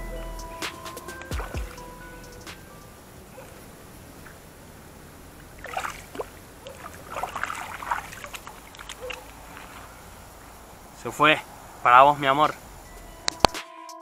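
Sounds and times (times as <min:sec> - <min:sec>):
fish splashing in shallow water: 0:03.4 - 0:10.9.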